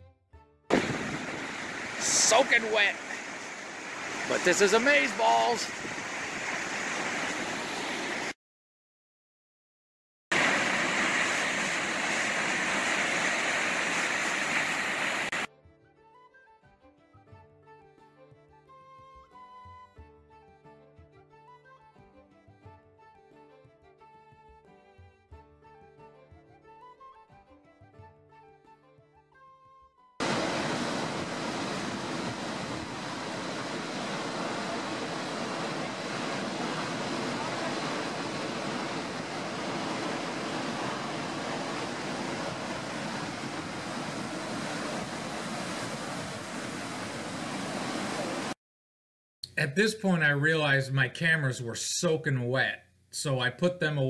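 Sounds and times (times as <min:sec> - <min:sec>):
waterfall rushing onto rocks: 0:00.7 - 0:08.3, 0:10.3 - 0:15.5, 0:30.2 - 0:48.6.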